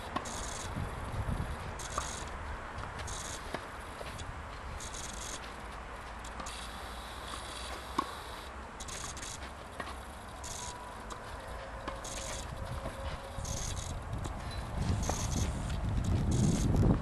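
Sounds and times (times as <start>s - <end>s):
low wind rumble: 0.0s - 6.2s, 10.1s - 17.0s
high buzzing bursts: 0.0s - 16.9s.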